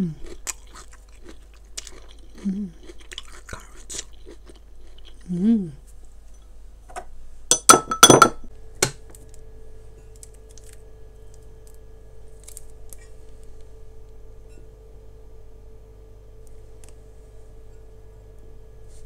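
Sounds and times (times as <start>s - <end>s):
faint steady hum: 0.0s - 19.0s
kitchenware clinking against glass: 7.5s - 8.5s.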